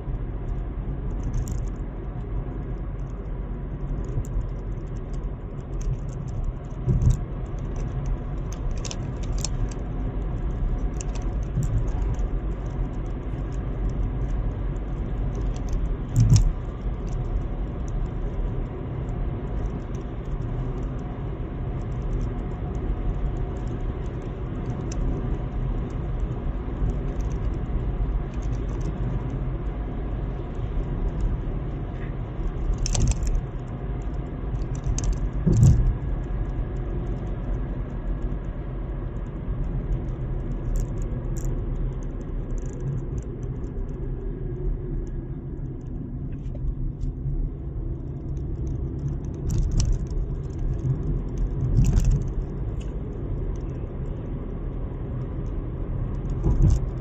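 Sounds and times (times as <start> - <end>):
car road and engine rumble: 0.0 - 57.0
short rattles and knocks: 5.8 - 9.7, 34.5 - 36.6, 56.2 - 57.0.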